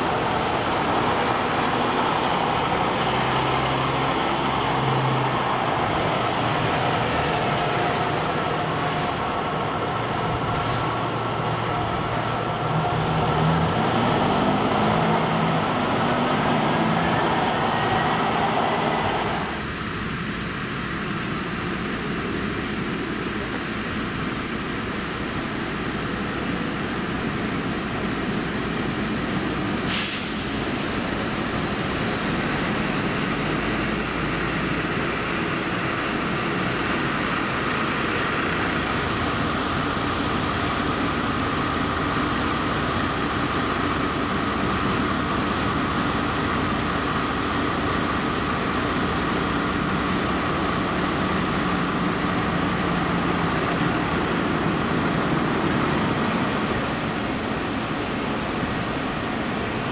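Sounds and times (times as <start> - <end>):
bus diesel engines running: 0.0 - 59.9
sharp burst of hiss: 29.9 - 31.5.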